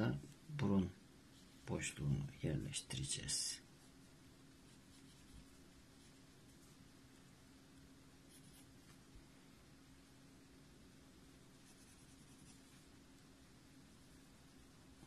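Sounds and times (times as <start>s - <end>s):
faint steady hum: 0.0s - 15.0s
pencil sketching on paper: 4.7s - 6.3s, 8.3s - 8.7s, 11.6s - 12.9s.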